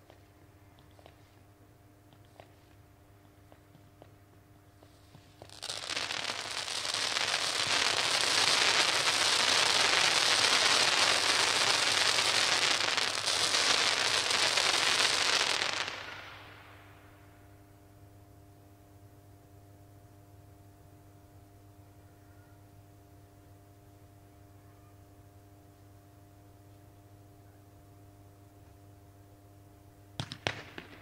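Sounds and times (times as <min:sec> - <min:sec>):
fireworks crackling and hissing: 0:00.0 - 0:17.4, 0:30.2 - 0:31.0.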